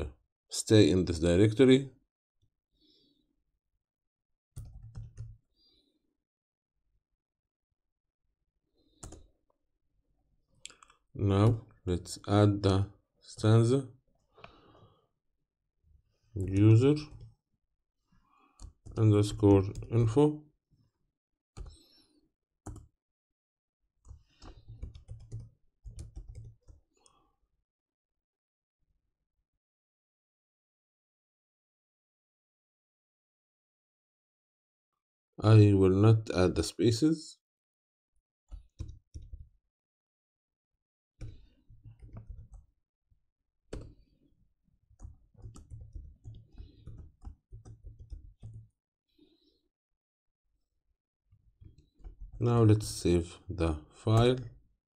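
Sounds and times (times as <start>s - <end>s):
faint keyboard typing: 4.6s - 5.4s, 8.9s - 9.3s, 16.4s - 17.4s, 18.6s - 20.1s, 21.6s - 22.0s, 22.6s - 22.9s, 24.0s - 27.2s, 38.5s - 39.5s, 41.2s - 42.7s, 43.7s - 44.2s, 44.9s - 49.3s, 51.6s - 53.0s.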